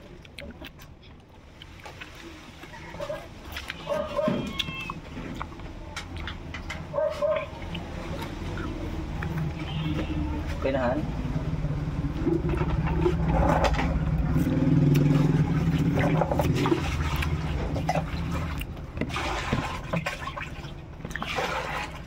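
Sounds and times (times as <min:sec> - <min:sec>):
sucking and chewing: 0:00.0 - 0:10.6, 0:12.1 - 0:22.0
low steady rumble: 0:04.5 - 0:22.0.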